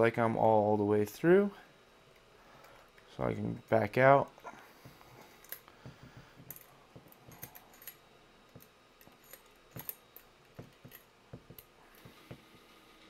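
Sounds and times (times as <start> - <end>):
hand tap clicking and scraping: 4.9 - 12.6.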